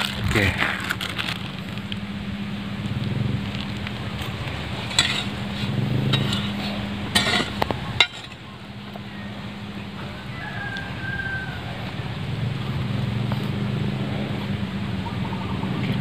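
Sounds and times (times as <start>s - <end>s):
hoe striking and scraping soil: 4.2s - 8.5s
rooster crowing: 9.0s - 12.4s.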